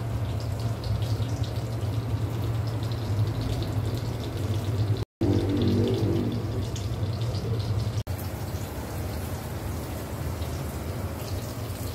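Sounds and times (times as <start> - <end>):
low hum: 5.2 - 7.2.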